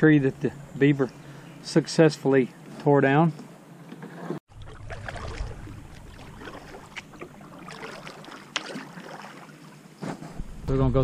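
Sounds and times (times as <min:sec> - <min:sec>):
water dripping and lapping: 0:03.9 - 0:09.9
paddle splashing in water: 0:04.0 - 0:09.9.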